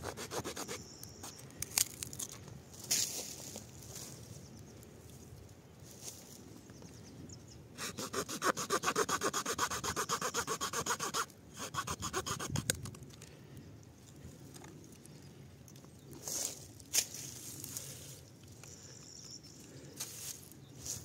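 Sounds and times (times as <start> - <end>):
saw blade sawing wood: 0.0 - 0.8, 7.8 - 12.7.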